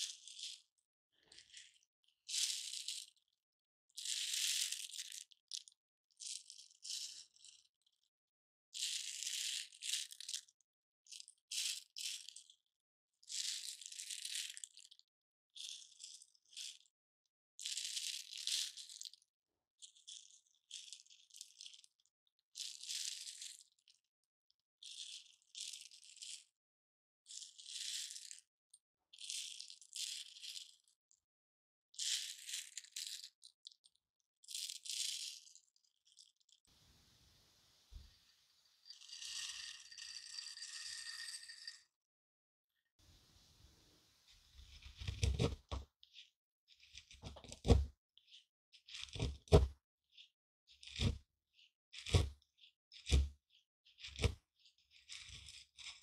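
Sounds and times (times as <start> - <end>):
dried lentils rattling in hands: 34.5 - 36.3, 38.8 - 41.7.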